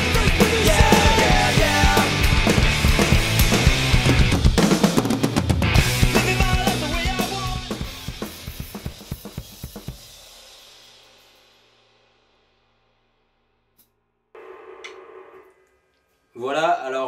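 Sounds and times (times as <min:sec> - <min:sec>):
punk rock music: 0:00.0 - 0:10.0
rock drum kit playing: 0:00.0 - 0:11.3.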